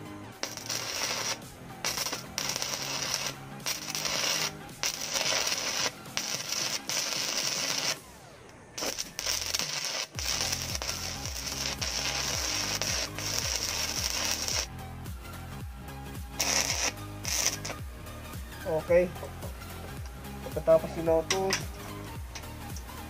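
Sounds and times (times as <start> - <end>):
welding arc crackling hiss: 0.0 - 8.1, 8.8 - 14.7, 16.3 - 17.9
background music with bass line: 0.0 - 23.0.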